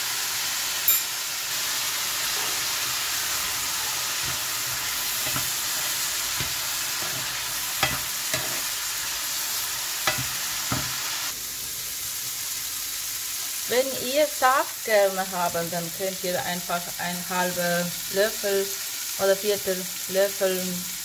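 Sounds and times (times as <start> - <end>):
vegetables sizzling in oil: 0.0 - 21.0
spoon knocking against pan: 10.0 - 10.9.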